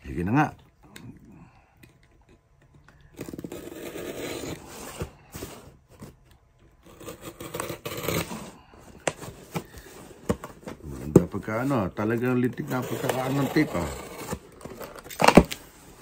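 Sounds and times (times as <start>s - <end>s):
tape scraping and tearing: 6.8s - 9.8s, 12.6s - 15.8s.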